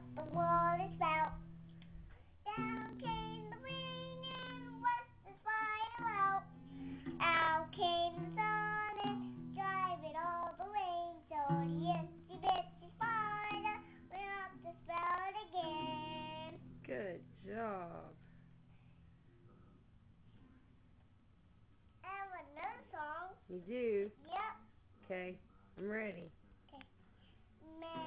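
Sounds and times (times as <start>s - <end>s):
young child singing: 0.0s - 1.6s, 2.4s - 16.7s, 22.0s - 23.3s, 27.6s - 28.0s
strummed acoustic guitar: 0.0s - 17.8s.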